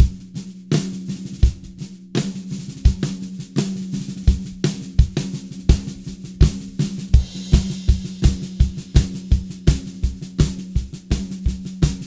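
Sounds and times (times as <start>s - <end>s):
snare drum groove: 0.0s - 12.0s
bass drum kicks: 4.3s - 12.0s.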